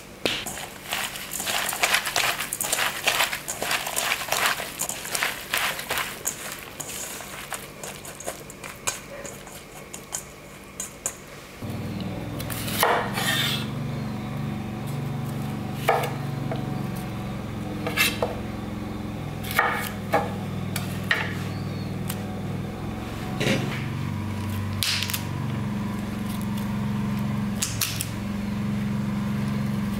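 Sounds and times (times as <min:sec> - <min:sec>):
steady low hum: 0:00.0 - 0:29.9
hands squishing seaweed in bowl: 0:00.4 - 0:11.2
knife chopping on wooden board: 0:19.5 - 0:20.4.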